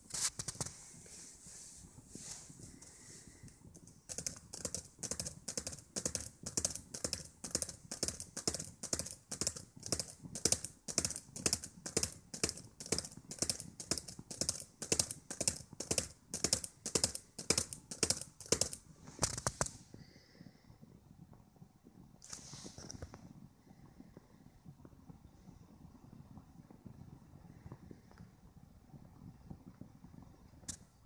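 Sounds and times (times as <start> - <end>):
laptop keys clicking: 3.5 - 19.8.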